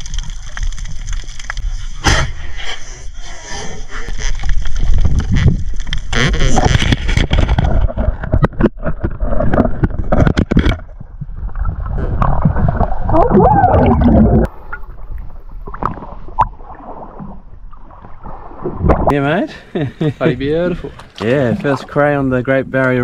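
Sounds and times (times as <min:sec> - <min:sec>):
sharp knocks and clicks underwater: 0:00.0 - 0:02.4, 0:04.1 - 0:19.1
water splashing: 0:00.0 - 0:02.5, 0:03.8 - 0:19.7
muffled underwater rumble and bubbling: 0:00.0 - 0:23.0.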